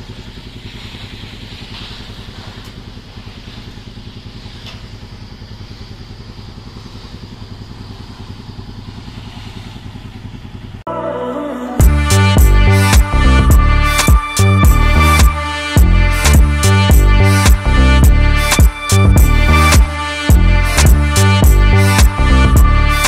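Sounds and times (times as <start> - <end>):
engine idling: 0.0 - 10.9, 11.8 - 23.0.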